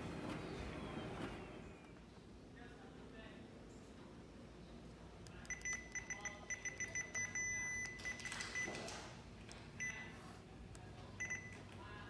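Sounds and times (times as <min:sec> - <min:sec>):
control panel beeps: 0:05.5 - 0:08.7, 0:09.8 - 0:10.1, 0:11.2 - 0:11.6.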